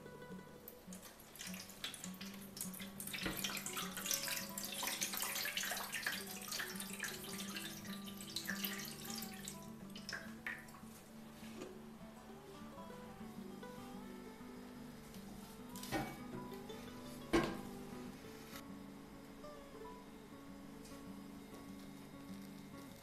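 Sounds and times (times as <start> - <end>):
water pouring into metal tray: 0.9 - 10.8.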